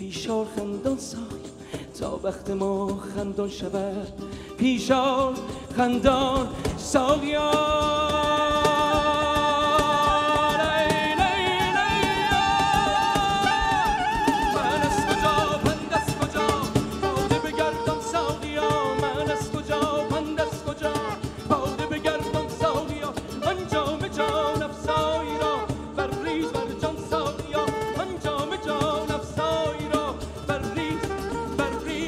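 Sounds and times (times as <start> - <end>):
man singing with vibrato: 0.0 - 32.0
plucked lute and bass: 0.0 - 32.0
steady drum beat: 6.2 - 31.6.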